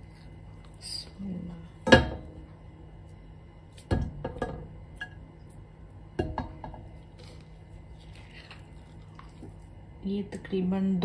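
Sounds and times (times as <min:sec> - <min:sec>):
metal spoon knocking a pot: 0:06.2 - 0:06.8.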